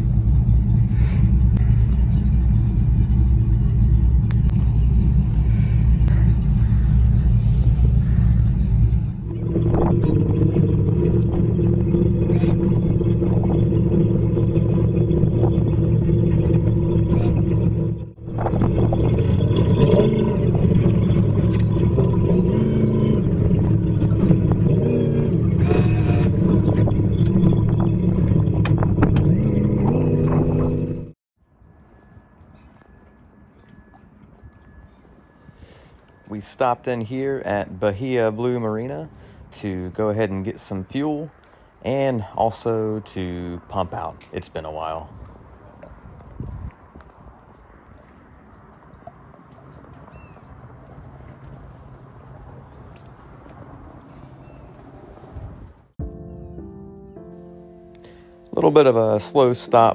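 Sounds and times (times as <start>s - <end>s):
propellers churning water: 0.0s - 31.1s, 43.3s - 55.2s
boat engines rumbling: 0.0s - 31.2s, 31.8s - 56.0s, 56.6s - 59.9s.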